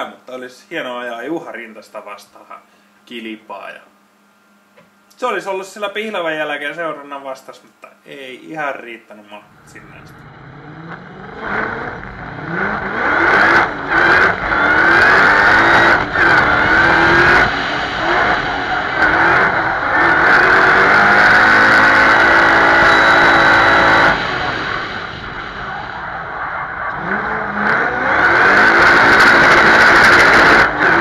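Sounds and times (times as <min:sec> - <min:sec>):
supercharged engine revving hard: 0:09.5 - 0:31.0.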